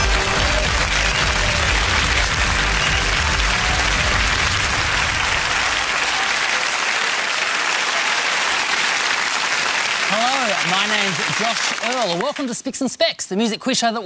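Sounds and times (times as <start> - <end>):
music: 0.0 - 5.6
studio audience applauding: 0.0 - 12.9.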